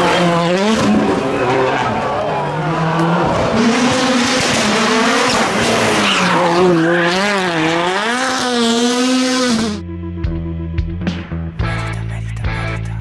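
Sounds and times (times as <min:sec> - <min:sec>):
rally car engine revving: 0:00.0 - 0:09.8.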